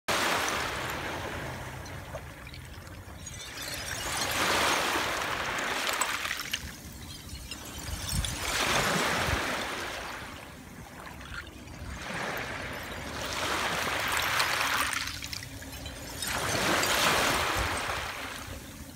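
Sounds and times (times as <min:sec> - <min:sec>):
small waves washing on a beach: 0:00.1 - 0:18.9
glass fragments clinking: 0:01.8 - 0:10.5, 0:12.7 - 0:18.9.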